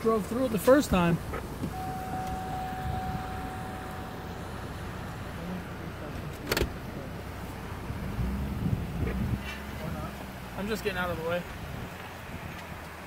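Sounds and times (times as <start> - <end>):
faint steady tone: 1.3 - 7.2.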